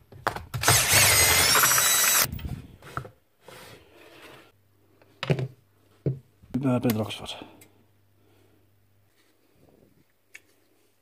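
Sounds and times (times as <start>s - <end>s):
power tool running: 0.6s - 2.3s.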